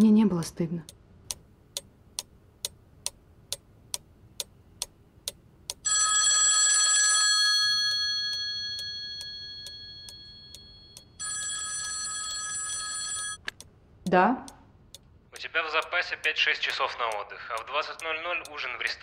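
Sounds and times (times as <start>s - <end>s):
clock ticking: 0.0s - 6.0s, 7.6s - 19.0s
rotary telephone bell ringing: 5.8s - 13.4s.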